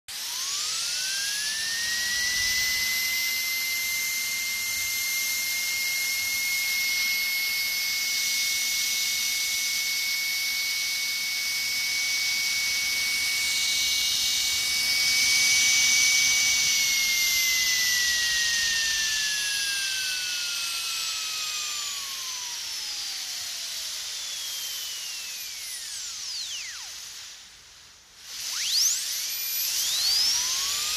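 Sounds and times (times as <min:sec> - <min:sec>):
dentist's drill whine: 0:00.1 - 0:27.5, 0:28.2 - 0:30.9
hiss: 0:13.0 - 0:30.9.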